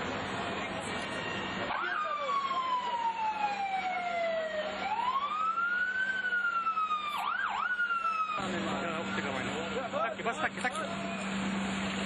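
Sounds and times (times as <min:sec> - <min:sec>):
emergency siren wailing: 0:01.0 - 0:10.1.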